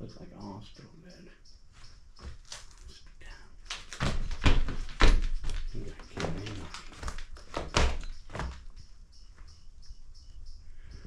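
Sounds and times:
faint high chirp: 0.0s - 3.6s, 5.3s - 11.0s
footsteps on wooden floorboards: 1.7s - 2.9s, 3.8s - 9.6s.

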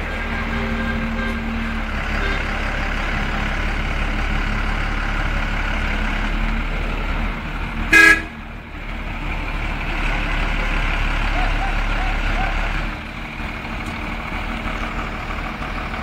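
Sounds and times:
water tanker truck running: 0.0s - 16.0s
truck horn toot: 0.2s - 2.6s, 7.9s - 8.4s.

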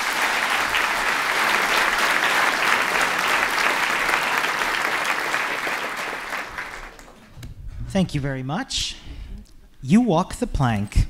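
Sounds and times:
audience applauding: 0.0s - 7.3s.

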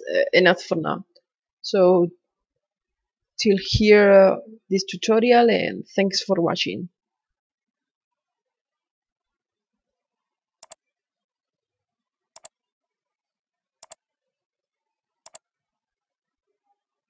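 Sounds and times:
computer mouse double-clicking: 15.2s - 15.4s.

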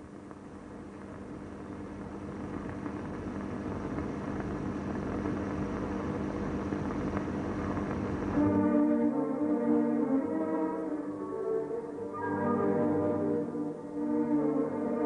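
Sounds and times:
low hum: 7.6s - 15.0s
music: 8.3s - 15.0s
film soundtrack noisy rush: 8.4s - 15.0s.

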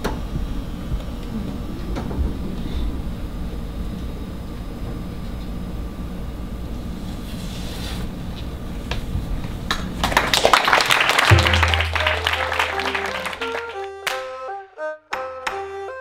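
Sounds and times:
audience clapping: 9.7s - 14.5s
low auditorium rumble: 10.1s - 14.0s.

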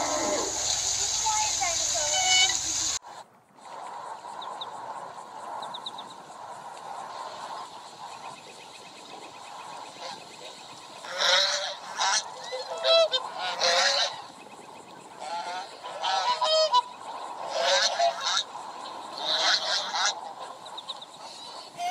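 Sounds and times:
waterfowl honking: 0.0s - 3.0s, 9.8s - 14.4s, 15.2s - 18.6s, 19.2s - 21.9s.

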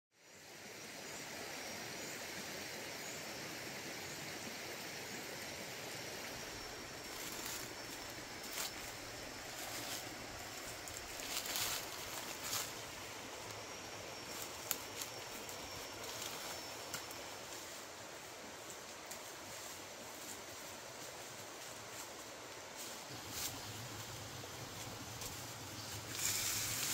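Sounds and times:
forest stream rushing: 0.3s - 26.9s
leaves and twigs crackling underfoot: 6.2s - 26.9s.

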